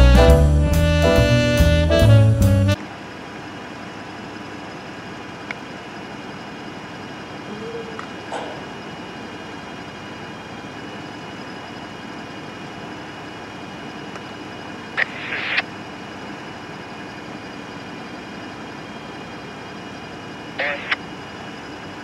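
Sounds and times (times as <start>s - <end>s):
diesel locomotives idling: 0.0s - 22.0s
sharp burst of noise: 15.0s - 15.7s.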